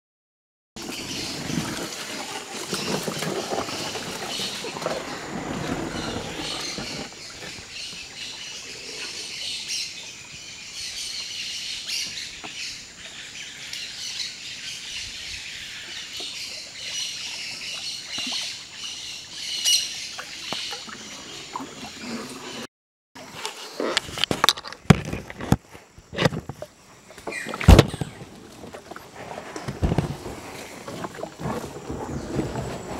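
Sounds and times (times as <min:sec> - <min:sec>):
canoe paddle sloshing water: 0:01.0 - 0:08.4, 0:26.5 - 0:32.9
birds calling and chirping: 0:02.7 - 0:22.6.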